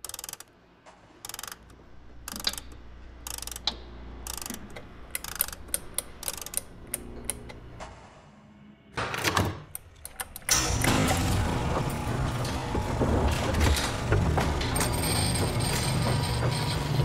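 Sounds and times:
mechanism clicking and ratcheting: 0:00.0 - 0:00.5, 0:01.2 - 0:07.6.

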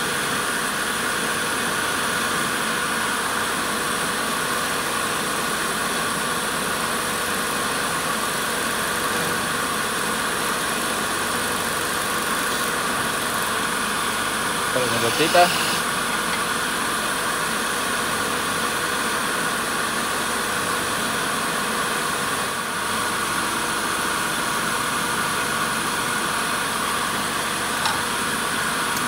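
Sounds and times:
wood lathe whirring hum: 0:00.0 - 0:29.0
lathe knife cutting wood: 0:14.7 - 0:17.2.

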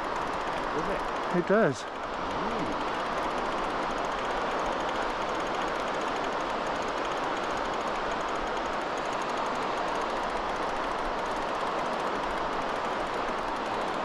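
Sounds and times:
fishing reel whirring: 0:00.1 - 0:14.0.

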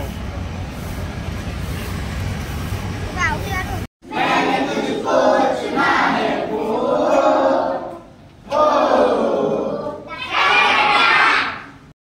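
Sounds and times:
group chanting: 0:04.0 - 0:11.7.

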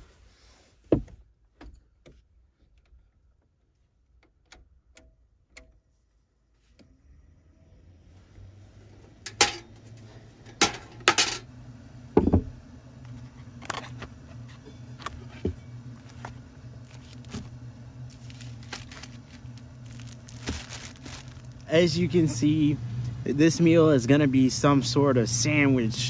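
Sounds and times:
low hum: 0:06.9 - 0:26.0.

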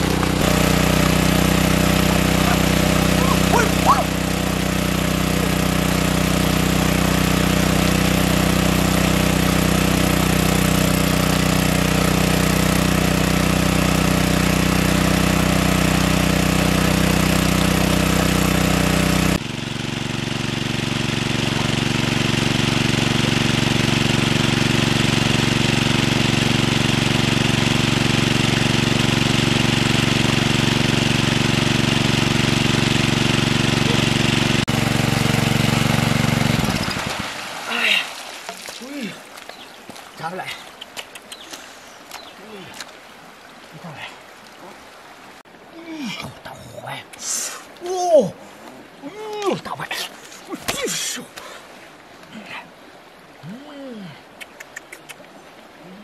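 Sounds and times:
water gushing from pipe: 0:00.0 - 0:40.7
petrol water pump running: 0:00.0 - 0:41.4.

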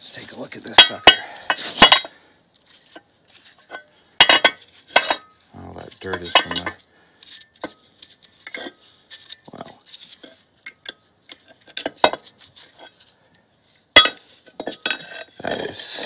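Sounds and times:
metal clinks and taps: 0:03.6 - 0:13.1.

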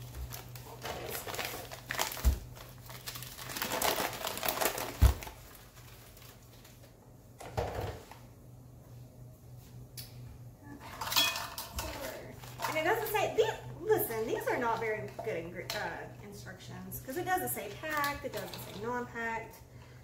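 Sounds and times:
sugar bags rustling: 0:00.0 - 0:07.0, 0:11.9 - 0:13.1.

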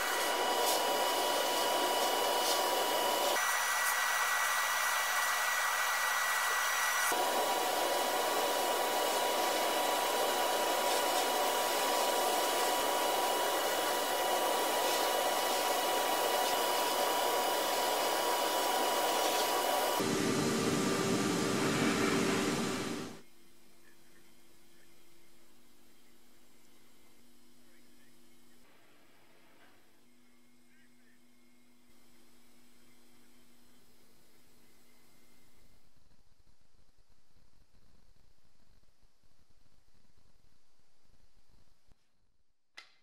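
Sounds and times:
abrasive blasting hiss: 0:00.0 - 0:23.2.

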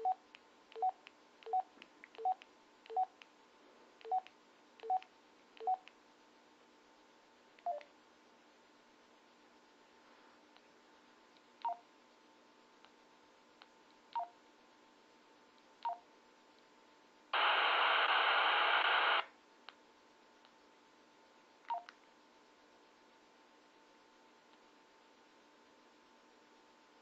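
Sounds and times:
radio static hiss burst: 0:17.4 - 0:19.3.

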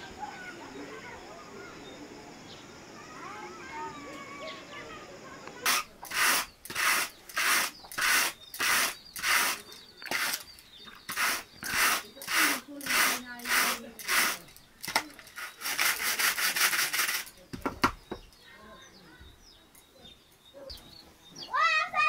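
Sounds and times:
hand carders brushing wool: 0:05.6 - 0:17.4.

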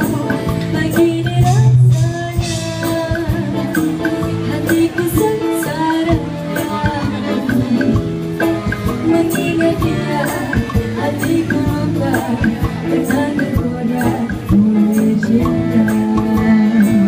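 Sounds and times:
band with percussion beat: 0:00.0 - 0:17.0
woman singing into a microphone: 0:00.0 - 0:17.0.

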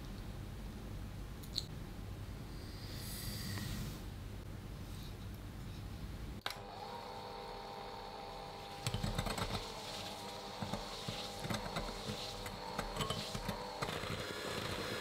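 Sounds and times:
electric hand mixer running: 0:06.5 - 0:15.0.

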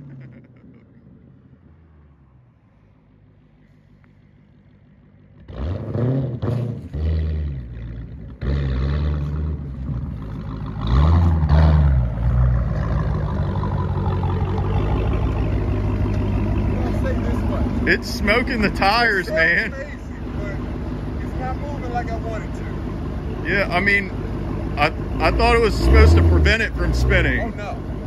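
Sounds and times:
car engine revving hard: 0:05.4 - 0:21.5, 0:23.4 - 0:28.0.

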